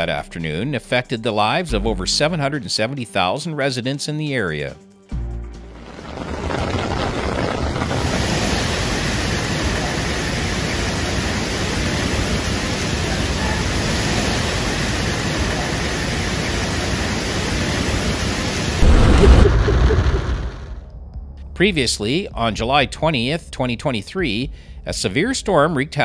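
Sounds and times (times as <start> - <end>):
heavy rain: 5.6 - 20.8
rushing floodwater: 5.9 - 19.2.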